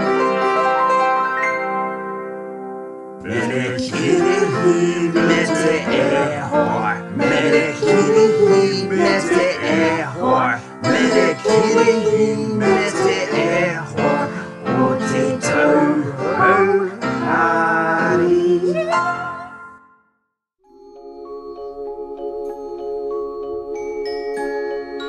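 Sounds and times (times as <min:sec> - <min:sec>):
instrumental accompaniment: 0:00.0 - 0:19.8, 0:20.7 - 0:25.0
voices singing: 0:03.2 - 0:19.6.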